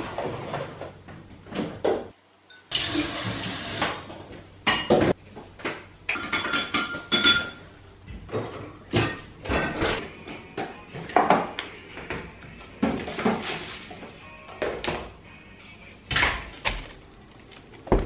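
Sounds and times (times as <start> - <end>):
crockery and cutlery clinking: 6.1 - 7.7.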